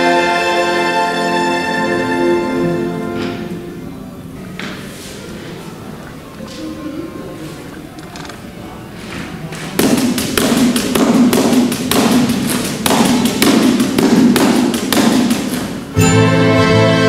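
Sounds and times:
folk orchestra sustained chords: 0.0s - 4.4s, 15.9s - 17.0s
percussion beats: 9.7s - 17.0s.

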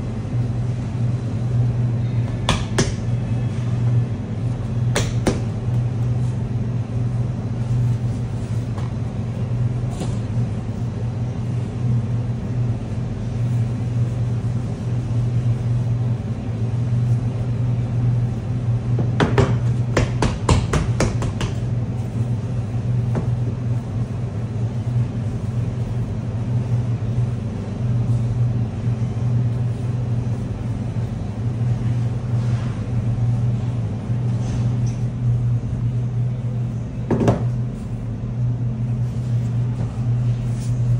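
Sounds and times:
kitchen machinery hum: 0.0s - 40.9s
rolling pin beating dough: 4.8s - 5.8s, 18.9s - 21.8s.

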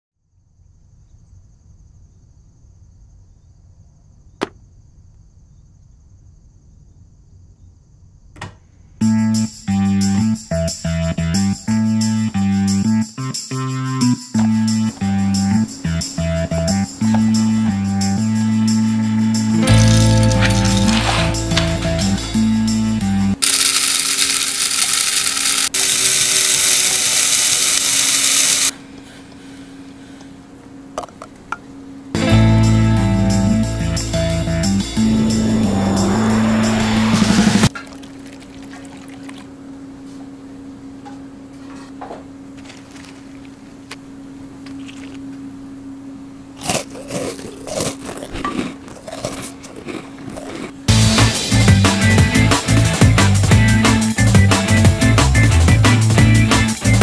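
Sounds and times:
steady high whine: 14.3s - 28.9s, 32.0s - 37.7s
plucked guitar music: 16.2s - 23.4s, 32.2s - 36.3s
electric coffee grinder whirring: 23.4s - 28.7s.

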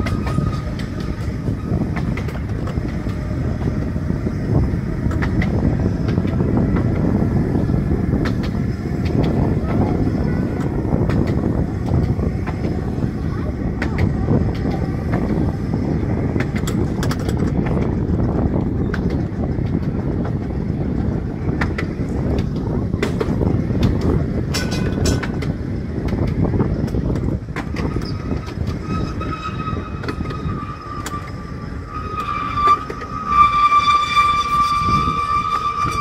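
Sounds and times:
high wheel squeal: 0.0s - 7.8s, 27.6s - 36.0s
rail clicks: 0.0s - 36.0s
tram rumbling along track: 0.0s - 36.0s.

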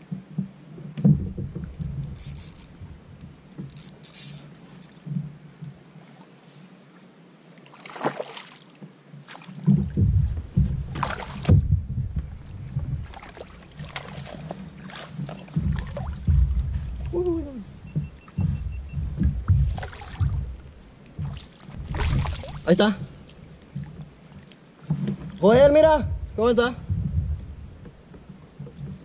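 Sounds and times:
water sloshing against kayak: 0.0s - 29.0s
wind buffeting microphone: 9.6s - 24.1s, 25.0s - 29.0s.

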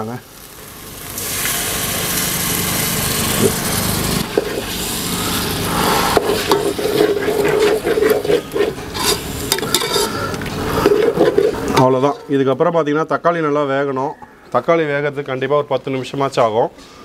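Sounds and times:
sauce sizzling: 0.0s - 12.0s
ladle scraping a metal pot: 4.2s - 4.8s, 6.1s - 12.3s.

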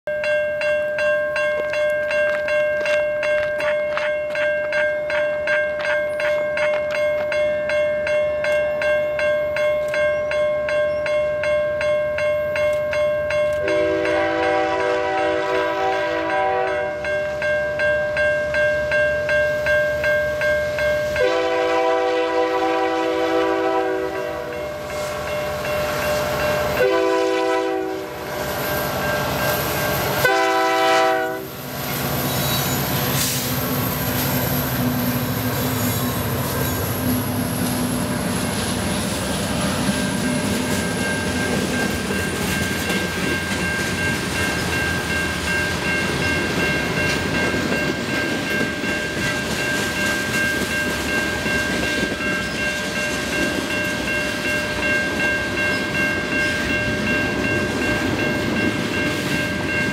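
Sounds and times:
level-crossing bell ringing: 0.1s - 14.9s, 16.1s - 21.6s, 24.1s - 27.2s, 28.3s - 30.3s, 39.7s - 59.9s
locomotive engines and wheels rumbling: 0.6s - 59.9s
locomotive horn: 13.6s - 17.0s, 21.2s - 24.6s, 26.8s - 28.3s, 30.2s - 31.6s.

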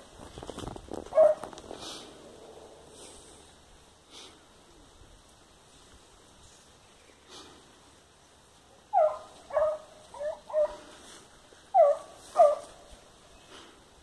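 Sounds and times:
dog barking: 1.1s - 1.4s, 8.9s - 10.8s, 11.7s - 12.8s.

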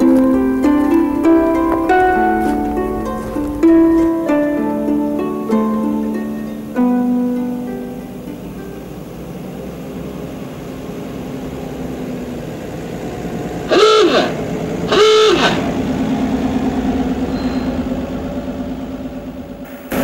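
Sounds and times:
car engine running: 0.0s - 19.7s
car horn honks: 13.7s - 15.8s.

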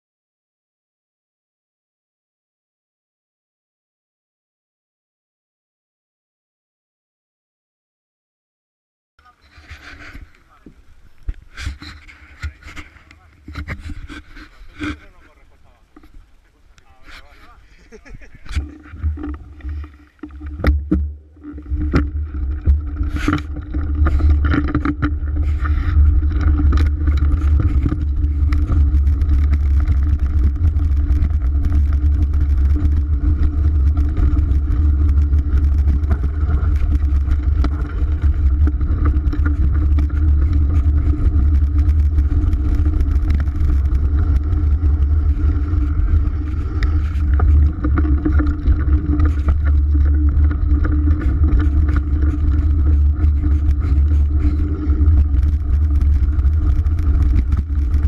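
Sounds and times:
tyres rolling over dirt: 9.2s - 58.0s
wind buffeting camera: 9.4s - 58.0s.

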